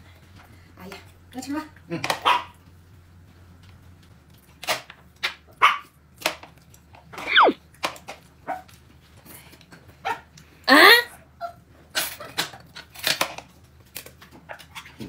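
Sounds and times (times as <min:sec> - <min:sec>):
dog barking: 0:02.2 - 0:02.5, 0:05.6 - 0:05.9.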